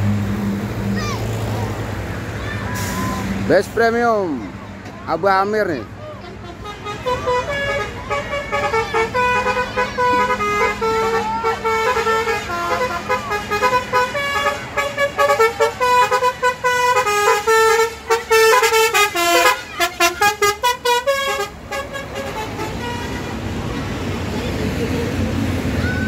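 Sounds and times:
multi-tone bus horn tune: 0:06.1 - 0:24.0
fast short horn blasts: 0:06.4 - 0:23.5.

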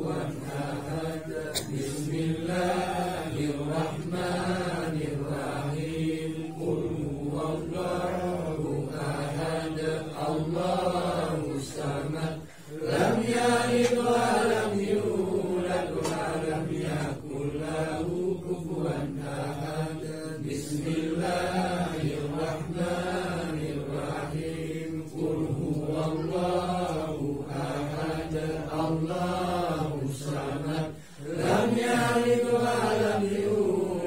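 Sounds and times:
men chanting: 0:00.0 - 0:34.0.

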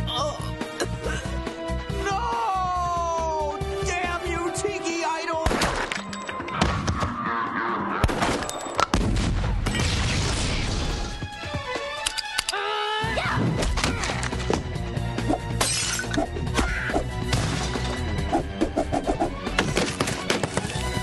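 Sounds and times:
background music: 0:00.0 - 0:21.0
explosion: 0:08.0 - 0:11.0.

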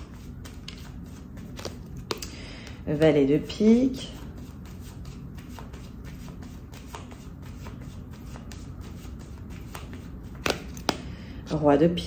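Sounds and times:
playing cards shuffling: 0:00.0 - 0:02.4, 0:04.2 - 0:11.0.

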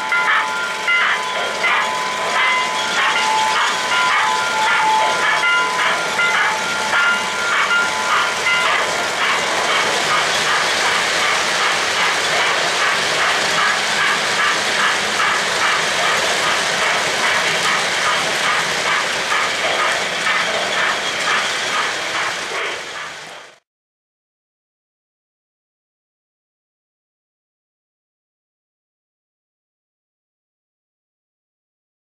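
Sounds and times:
model train wheels rumbling: 0:00.0 - 0:23.6
clicking over rail joints: 0:00.1 - 0:23.5.

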